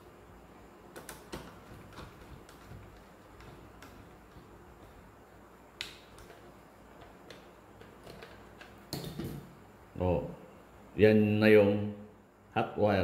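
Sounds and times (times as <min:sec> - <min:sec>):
screwdriver clicks and taps: 0:00.9 - 0:04.5, 0:05.8 - 0:09.4.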